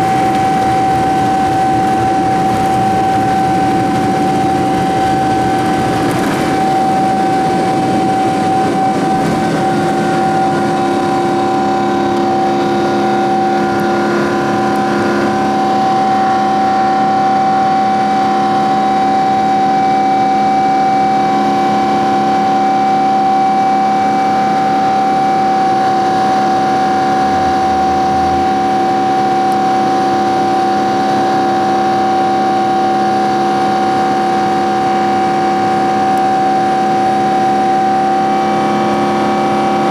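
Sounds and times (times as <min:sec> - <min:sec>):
takeoff roll rumble: 0:00.0 - 0:17.2
jet engines droning with whine: 0:00.0 - 0:39.9.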